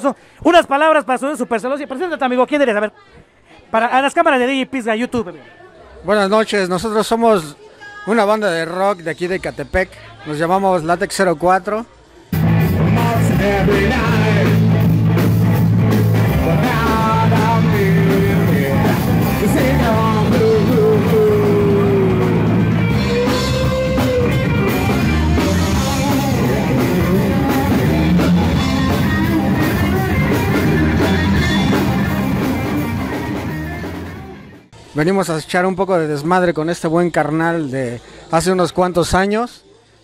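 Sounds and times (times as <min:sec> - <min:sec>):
rock band with singing: 0:12.3 - 0:34.8.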